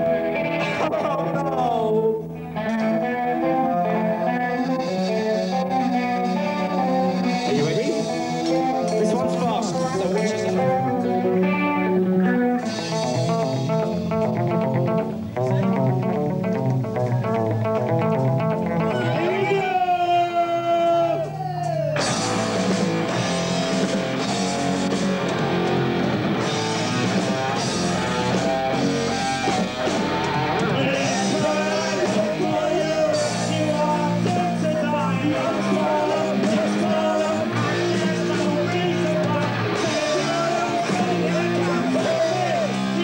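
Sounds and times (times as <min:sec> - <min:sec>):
bass guitar: 0:00.0 - 0:19.9, 0:21.0 - 0:43.0
drums: 0:00.0 - 0:43.0
electric guitar: 0:00.0 - 0:43.0
person singing: 0:29.1 - 0:43.0.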